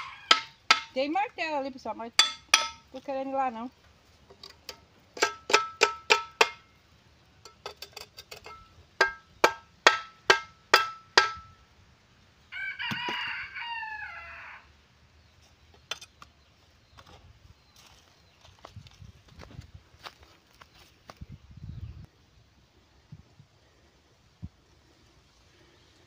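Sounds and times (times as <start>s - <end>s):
rooster crowing: 0.0s - 0.7s, 12.5s - 14.7s
sharp metallic knocks: 0.0s - 1.0s, 2.2s - 2.9s, 4.7s - 6.7s, 7.5s - 11.6s.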